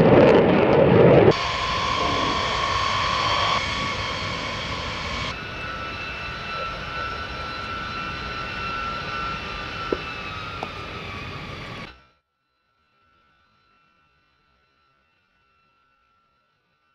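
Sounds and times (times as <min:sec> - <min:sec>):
fighter jet in flight: 0:00.0 - 0:12.1
jet engines taxiing: 0:00.0 - 0:12.1.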